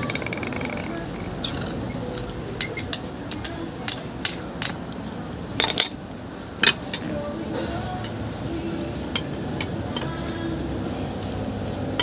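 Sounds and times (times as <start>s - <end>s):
cutlery clinking on shells and plate: 0.0s - 6.0s
low background hum: 0.0s - 12.0s.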